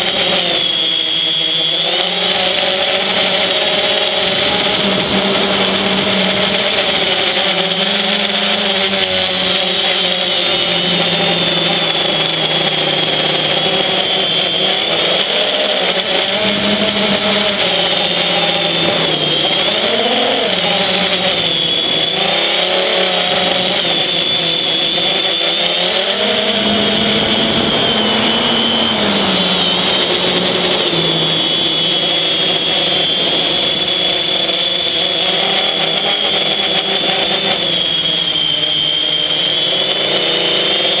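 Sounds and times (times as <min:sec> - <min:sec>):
quadcopter motors and propellers: 0:00.0 - 0:41.0.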